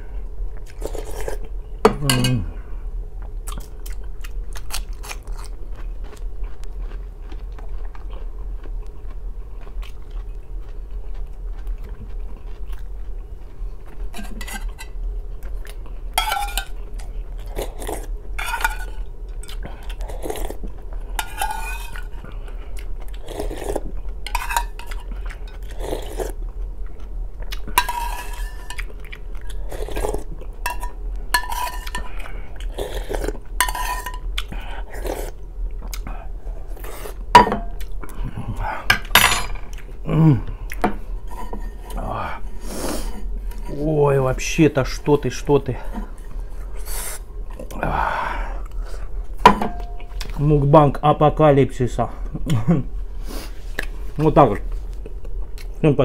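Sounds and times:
metal spoon scraping a metal bowl: 14.1 - 15.0, 16.2 - 16.8, 18.4 - 19.0, 21.2 - 22.1, 24.3 - 25.8, 27.8 - 28.9, 29.8 - 32.1, 33.6 - 34.2, 41.2 - 42.0.

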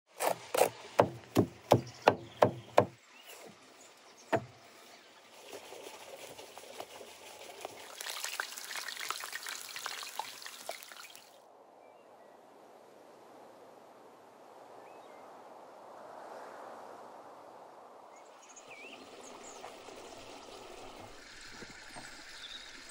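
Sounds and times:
knife chopping on wooden board: 0.2 - 3.0.

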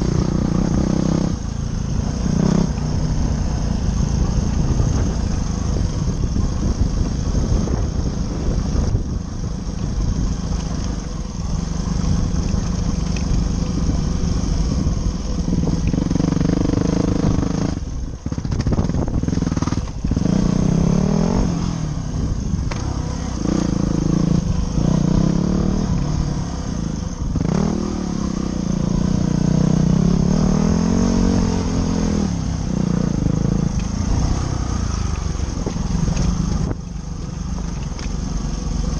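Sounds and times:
dirt bike engine revving: 0.0 - 5.8, 15.5 - 21.9, 27.3 - 36.7.

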